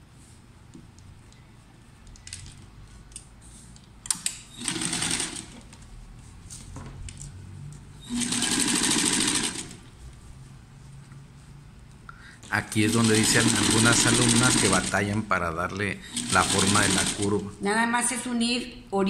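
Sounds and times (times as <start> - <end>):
sewing machine stitching: 4.5 - 5.6, 8.0 - 9.9, 12.8 - 15.0, 16.1 - 17.4.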